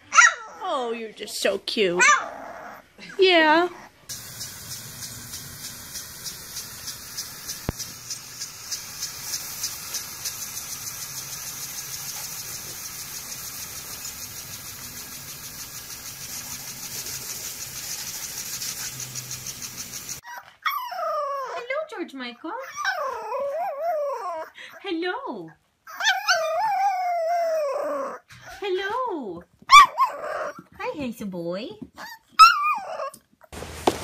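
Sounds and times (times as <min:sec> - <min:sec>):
sprinkler rhythmic ticking: 0:04.1 - 0:20.2
sprinkler water hissing: 0:04.1 - 0:20.2.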